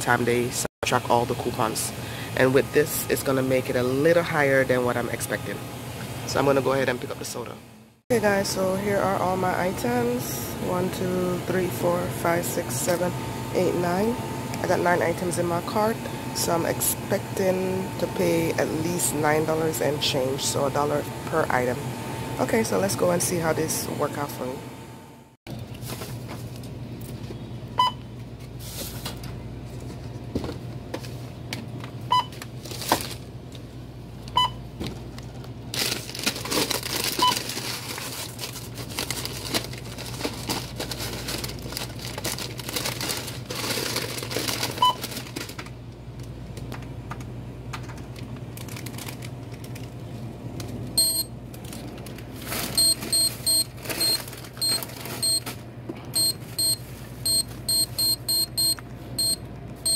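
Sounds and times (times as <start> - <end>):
plastic bags rustling: 32.4 - 33.3, 35.7 - 45.8, 48.1 - 50.0, 51.5 - 55.6
items being handled: 34.8 - 45.8
barcode scanner beeps: 51.0 - 51.3, 52.8 - 55.4, 56.2 - 59.9.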